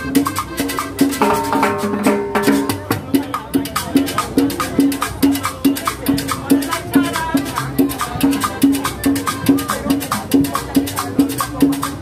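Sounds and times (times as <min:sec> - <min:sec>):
accordion melody: 0:00.0 - 0:05.2, 0:06.6 - 0:10.6
drums keeping a steady beat: 0:00.0 - 0:12.0.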